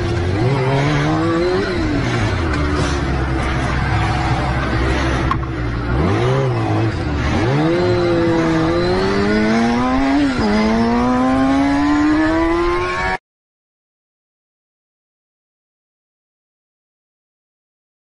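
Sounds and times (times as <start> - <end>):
motorcycle engine revving: 0.0 - 13.2.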